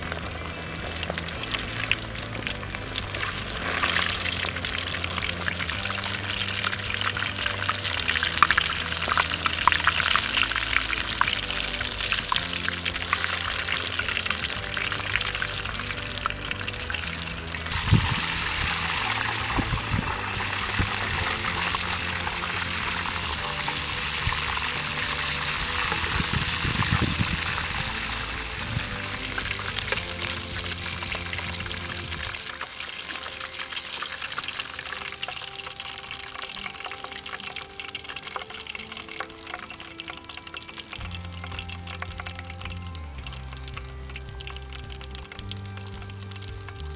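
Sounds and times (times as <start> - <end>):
background music: 0.0 - 46.9
hot oil sizzling: 0.0 - 46.9.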